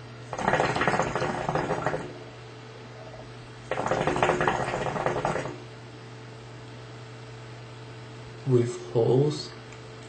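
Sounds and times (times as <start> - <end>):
steady low hum: 0.0 - 10.0
hookah water bubbling: 0.2 - 2.3, 2.9 - 5.8.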